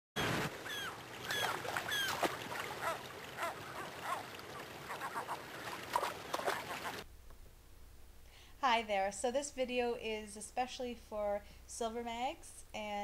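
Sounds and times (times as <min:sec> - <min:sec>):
gulls calling: 0:00.2 - 0:07.0
river water rushing: 0:00.2 - 0:07.0.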